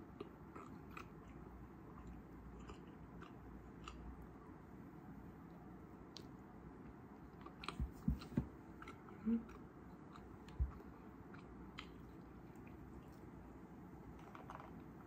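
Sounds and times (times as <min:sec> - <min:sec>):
person chewing: 0:00.0 - 0:04.4, 0:14.2 - 0:15.0
soft thumps: 0:07.7 - 0:08.6.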